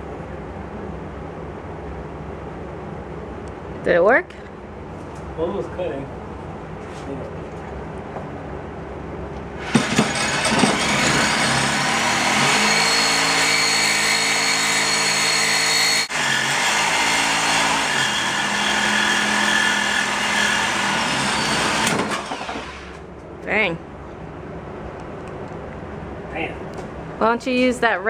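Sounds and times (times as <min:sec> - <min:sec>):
electric saw whining: 0:09.6 - 0:23.0.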